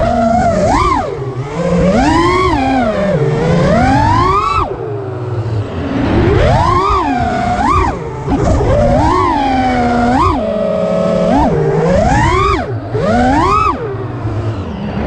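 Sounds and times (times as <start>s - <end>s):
drone motors whining: 0.0s - 15.0s.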